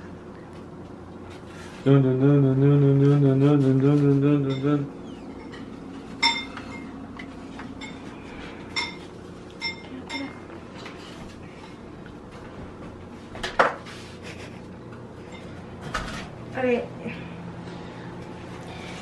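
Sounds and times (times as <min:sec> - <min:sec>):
metal kitchenware clatter: 0:05.3 - 0:06.9
metal kitchenware clinking: 0:05.3 - 0:07.0, 0:08.7 - 0:10.4.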